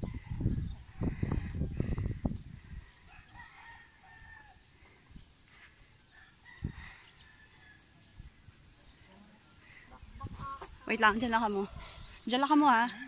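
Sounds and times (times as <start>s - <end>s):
small birds chirping: 0.0s - 12.9s
rooster crowing: 3.1s - 4.6s.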